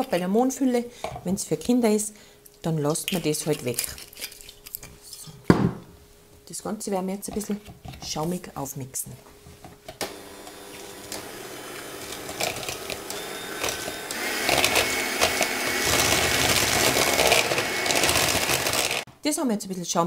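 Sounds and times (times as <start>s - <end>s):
electric hand mixer whipping: 10.0s - 19.1s.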